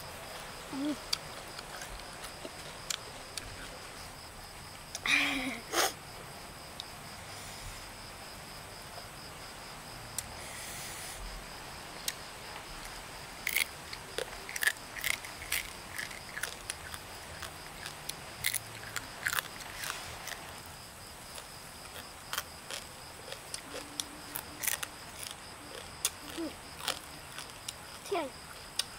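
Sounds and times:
crunchy chewing: 0:00.3 - 0:04.3, 0:12.0 - 0:28.9.

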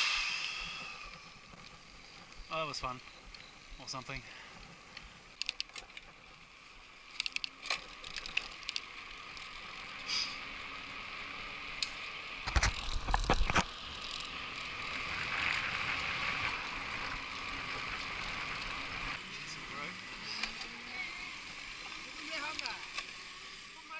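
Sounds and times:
tyre hiss on asphalt: 0:00.0 - 0:02.8, 0:08.6 - 0:23.9
wind: 0:00.0 - 0:23.9
bike clicks and rattles: 0:00.9 - 0:19.2.

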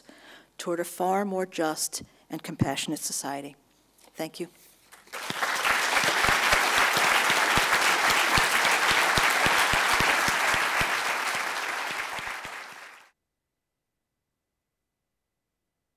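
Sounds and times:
audience applauding: 0:05.0 - 0:13.1.

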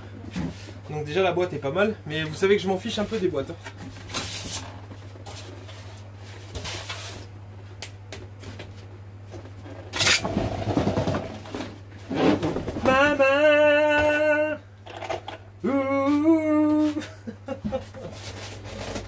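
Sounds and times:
cardboard rustling and scraping: 0:02.3 - 0:07.3, 0:08.5 - 0:13.0, 0:17.7 - 0:19.0.

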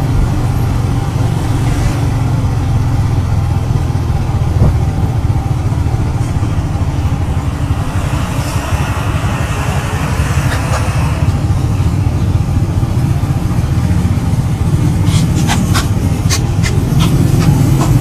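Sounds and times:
road noise: 0:00.0 - 0:18.0
vehicle engine drone: 0:00.0 - 0:18.0.

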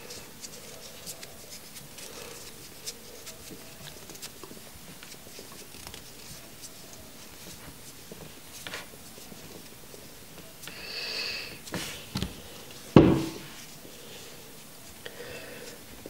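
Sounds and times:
handling and rubbing noises: 0:00.0 - 0:10.7, 0:11.6 - 0:15.0
sharp knock: 0:13.0 - 0:13.4.

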